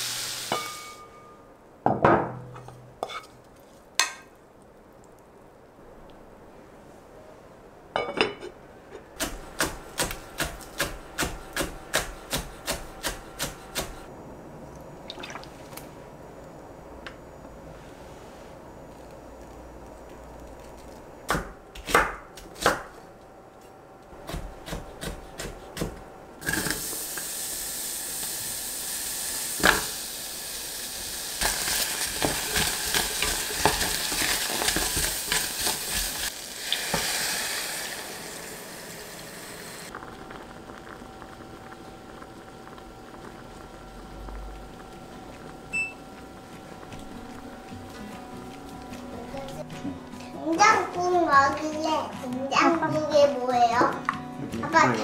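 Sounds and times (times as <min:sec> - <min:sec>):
food sizzling in a pot: 0:00.0 - 0:01.4, 0:26.4 - 0:49.7.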